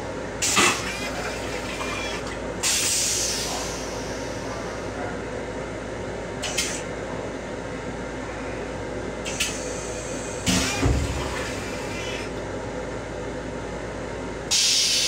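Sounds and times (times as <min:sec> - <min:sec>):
train toilet flushing: 0:00.4 - 0:05.0, 0:09.2 - 0:12.4, 0:14.5 - 0:15.0.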